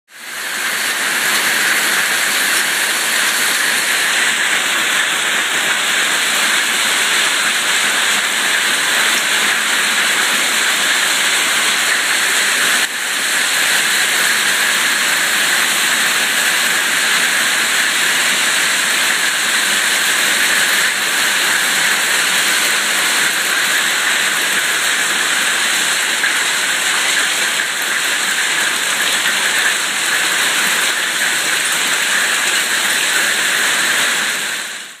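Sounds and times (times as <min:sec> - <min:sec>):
hail and rain pelting concrete: 0:00.3 - 0:35.0.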